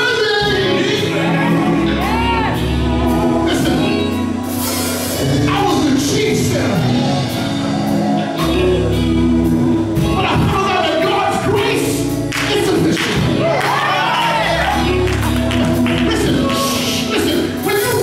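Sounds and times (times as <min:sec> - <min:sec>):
man singing lead: 0:00.0 - 0:04.4, 0:05.0 - 0:12.0
bass line: 0:00.0 - 0:18.0
electric guitars: 0:00.0 - 0:18.0
backing vocalists: 0:00.4 - 0:17.9.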